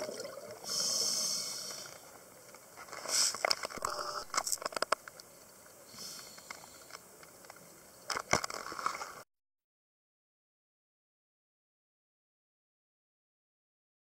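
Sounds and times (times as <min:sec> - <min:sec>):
crackles and clicks: 0:00.0 - 0:09.3
regulator breathing hiss: 0:00.6 - 0:02.1, 0:03.0 - 0:04.3, 0:05.8 - 0:07.0.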